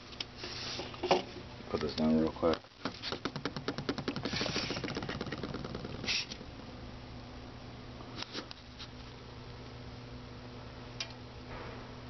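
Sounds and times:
steady low hum: 0.0 - 12.0
rapid clicking rattle: 2.9 - 6.4.

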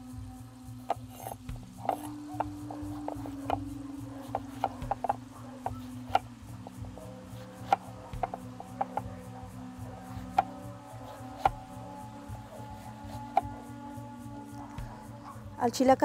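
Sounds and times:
soft background music: 0.0 - 16.0
knife chopping squash on board: 0.9 - 9.2, 10.1 - 13.6.

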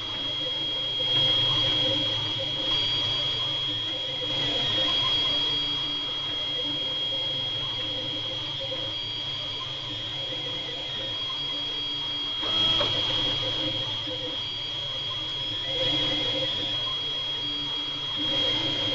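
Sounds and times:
printer motor tones: 0.0 - 18.9
three d printer high whine: 0.0 - 18.9.

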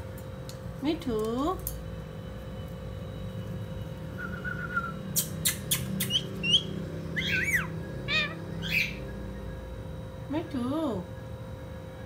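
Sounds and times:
parakeet calling: 5.2 - 9.6.

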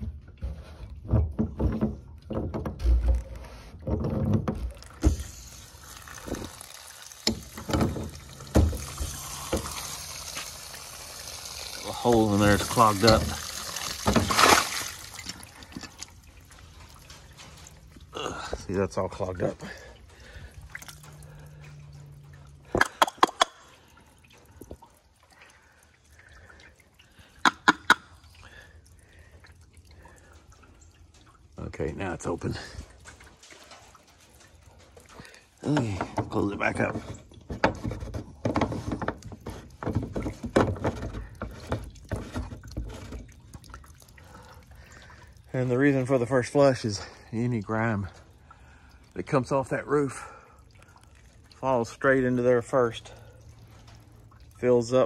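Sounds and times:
water spraying with hiss: 5.0 - 15.4.

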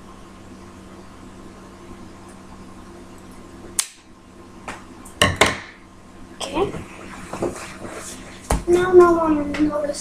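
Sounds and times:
sharp snap: 3.8 - 4.1.

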